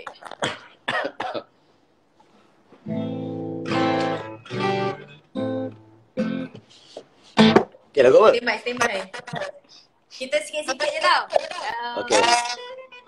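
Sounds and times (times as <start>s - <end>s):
acoustic guitar strumming: 2.8s - 6.7s, 7.4s - 7.8s, 11.9s - 13.0s.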